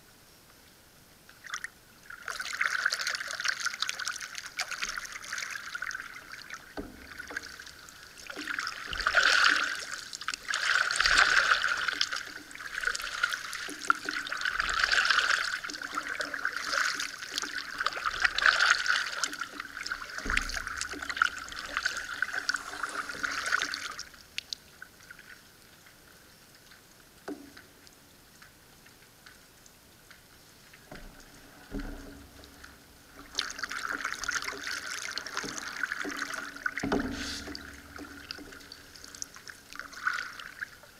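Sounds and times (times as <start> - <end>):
paddle splashing water: 1.3 - 40.9
paddle knocking against hull: 4.1 - 24.2, 30.8 - 40.7.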